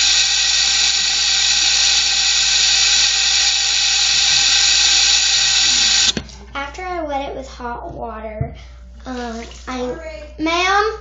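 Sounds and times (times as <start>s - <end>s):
water running from a tap: 0.0s - 6.2s.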